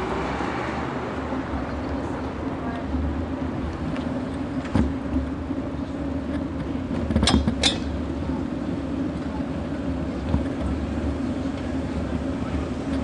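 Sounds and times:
bicycle tyres rumbling on bricks: 2.8 - 13.0.

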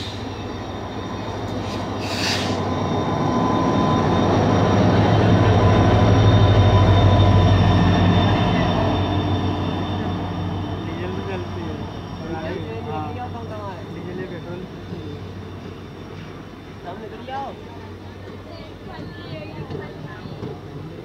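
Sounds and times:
diesel locomotive engine rumble: 0.0 - 21.0
train coaches rolling past: 0.0 - 21.0
brief hiss: 1.6 - 2.6.

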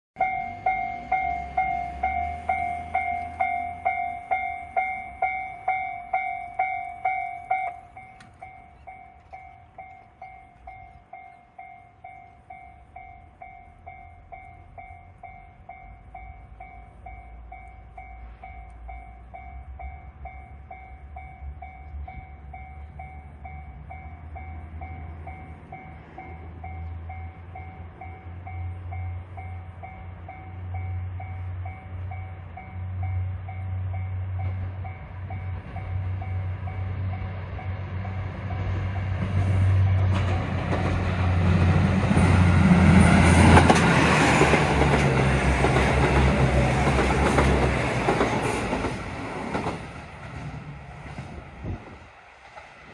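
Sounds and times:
level crossing warning bell: 0.2 - 39.2
diesel train engine rumble: 0.2 - 52.9.

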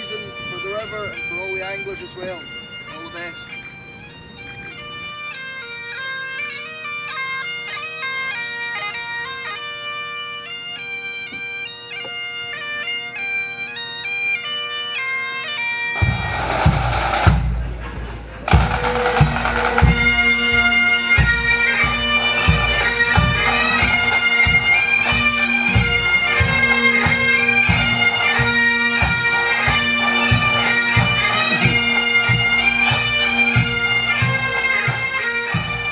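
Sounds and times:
bagpipes playing: 0.0 - 17.7, 18.4 - 35.9
drums beating: 16.0 - 35.9.

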